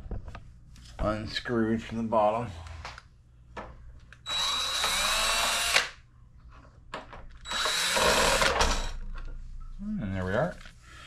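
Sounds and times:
cordless drill whining: 0:04.2 - 0:06.0, 0:07.4 - 0:09.0.

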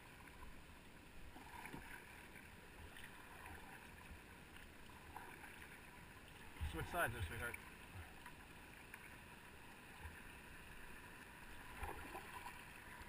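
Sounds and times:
soft paddle strokes: 0:00.0 - 0:13.0
water lapping at hull: 0:00.0 - 0:13.0.

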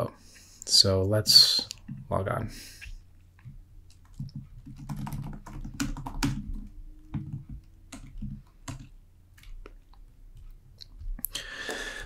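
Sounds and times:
computer keyboard typing: 0:03.4 - 0:10.6.

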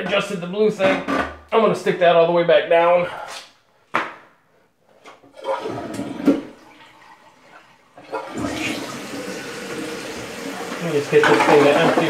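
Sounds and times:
toilet tank refilling: 0:05.2 - 0:12.0
toilet water rushing into bowl: 0:05.3 - 0:12.0.

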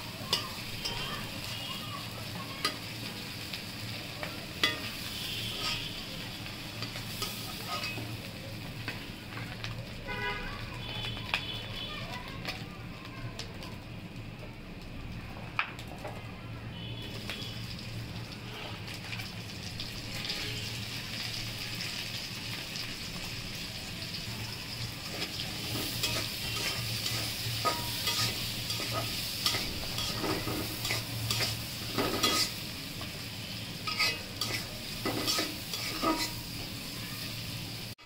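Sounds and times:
onions sizzling in hot oil: 0:00.0 - 0:38.0
metal spatula scraping a pan: 0:04.6 - 0:06.0, 0:06.8 - 0:08.1, 0:25.0 - 0:32.6, 0:33.8 - 0:36.5.

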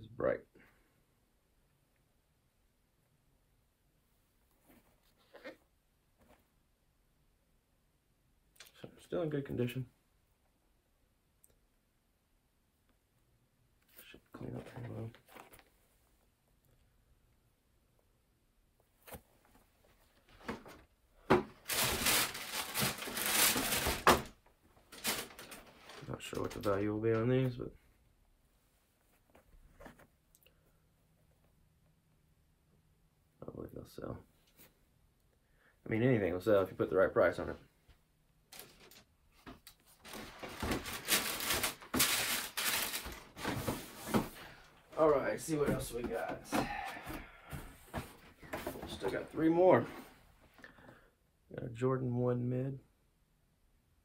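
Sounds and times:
packaging rustling and scraping: 0:21.6 - 0:24.3, 0:24.9 - 0:26.6, 0:40.0 - 0:44.5.

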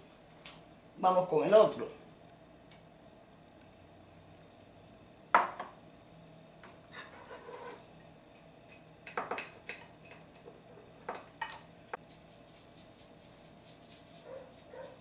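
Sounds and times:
kitchenware knocking and clinking: 0:05.3 - 0:05.8, 0:09.1 - 0:11.6.

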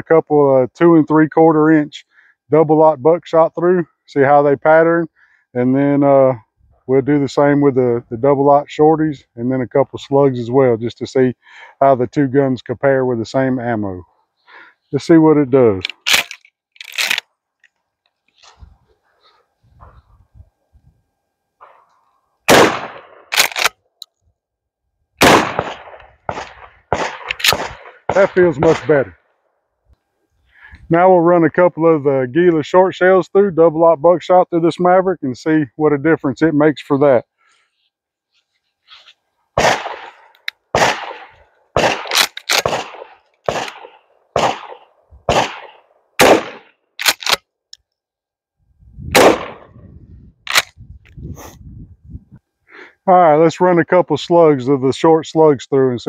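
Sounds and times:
shotgun blasts with echo: 0:22.5 - 0:23.4, 0:25.2 - 0:29.1, 0:39.6 - 0:46.7, 0:49.1 - 0:49.8
shotgun pump slide clacks: 0:23.3 - 0:23.7.

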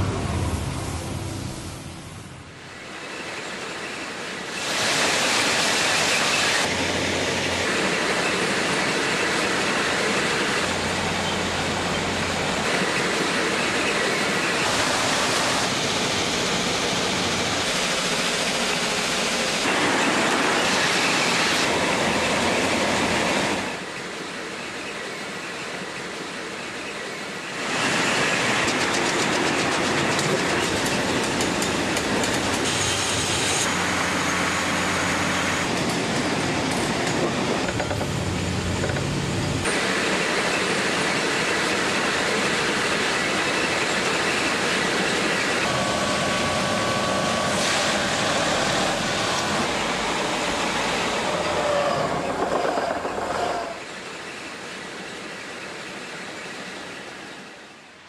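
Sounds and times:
heavy track machines clattering: 0:27.6 - 0:56.0.

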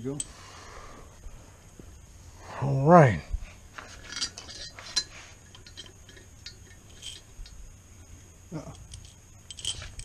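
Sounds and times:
metallic clinks of bolts: 0:04.0 - 0:07.6, 0:08.6 - 0:10.0.

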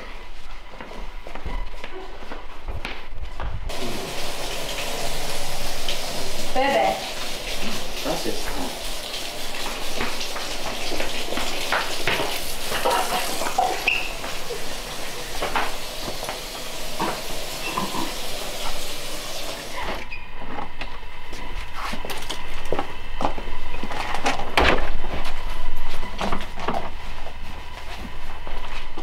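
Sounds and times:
tap water running: 0:03.7 - 0:20.1.

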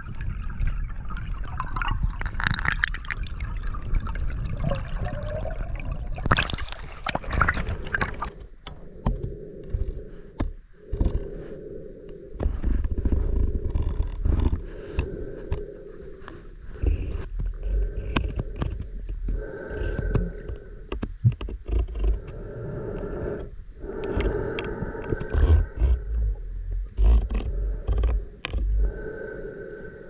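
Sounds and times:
underwater water rushing: 0:00.0 - 0:08.5
low underwater thumps and rumbling: 0:24.2 - 0:29.0.

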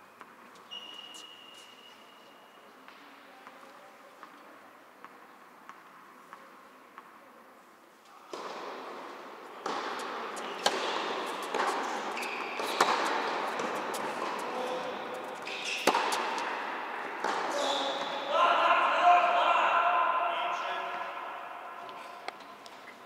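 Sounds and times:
rackets striking tennis ball: 0:08.3 - 0:18.2
tennis ball bouncing: 0:08.3 - 0:18.2.

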